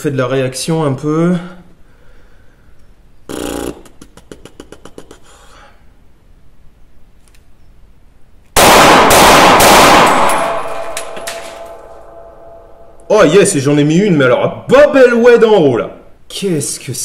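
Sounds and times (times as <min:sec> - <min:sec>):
pistol shots echoing indoors: 0:08.6 - 0:13.1.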